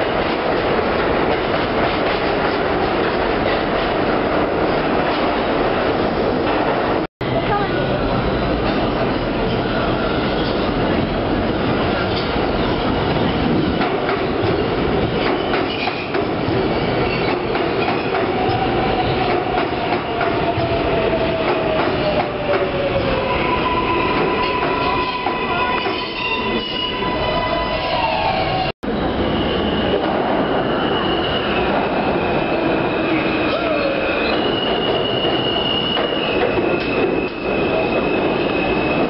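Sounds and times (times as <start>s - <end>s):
high brake squeal: 23.4s - 31.7s, 33.0s - 39.0s.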